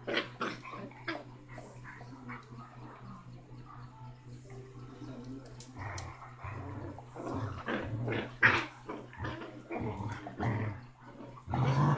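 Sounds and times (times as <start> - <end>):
puppy growling: 0.0 - 11.9.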